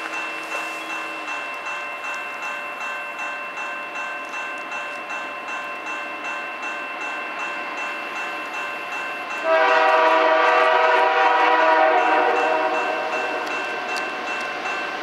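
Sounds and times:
locomotive air horn chord: 9.4s - 13.5s.

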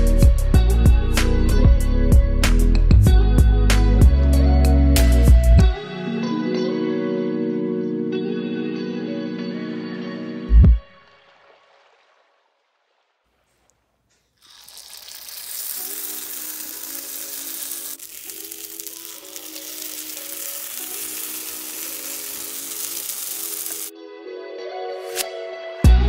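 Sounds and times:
slow melodic background music: 0.0s - 11.6s, 15.9s - 26.0s
batter sizzling in hot oil: 14.4s - 23.9s.

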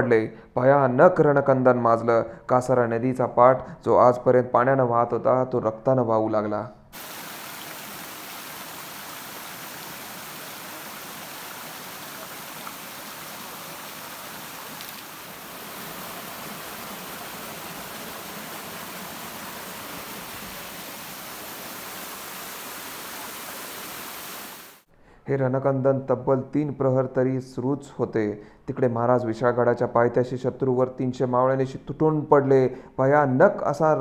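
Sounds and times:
water rushing over rocks: 7.0s - 24.8s.

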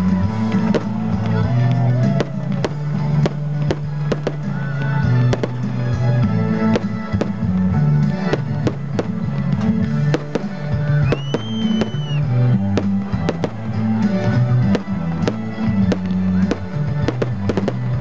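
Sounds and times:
music with held bass notes: 0.0s - 18.0s
firework shells bursting: 8.1s - 12.2s
firework whistle: 10.9s - 13.5s.

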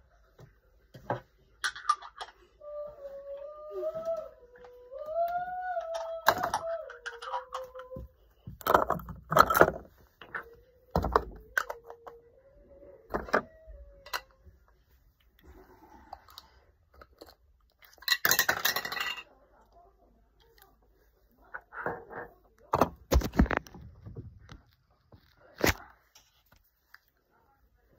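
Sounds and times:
girl humming softly: 2.6s - 8.2s.

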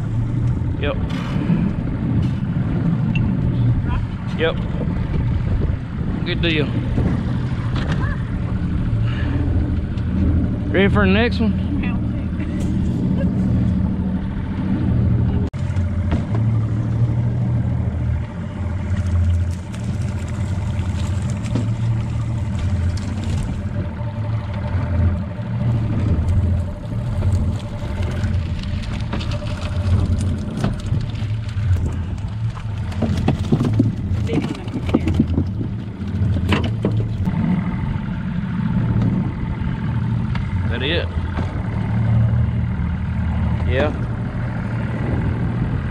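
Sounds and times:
outboard motor idling: 0.0s - 45.9s
wind buffeting microphone: 0.0s - 45.9s
net clanking against metal boat: 28.4s - 37.3s.

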